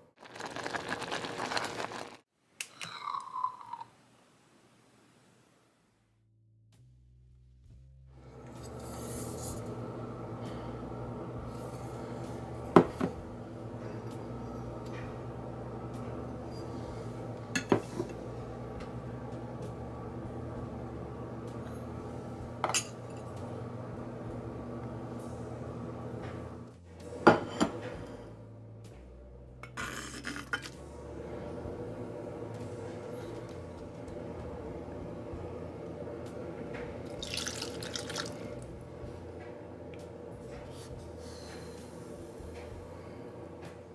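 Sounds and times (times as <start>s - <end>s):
steady background hum: 8.1s - 43.9s.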